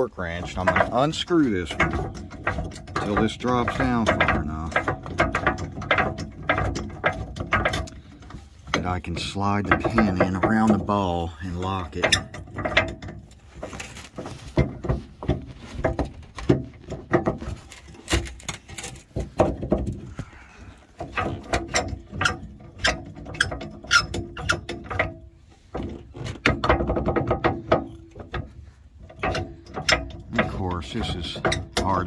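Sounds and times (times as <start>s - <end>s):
metal parts knocking: 0.0s - 20.2s, 21.0s - 32.0s.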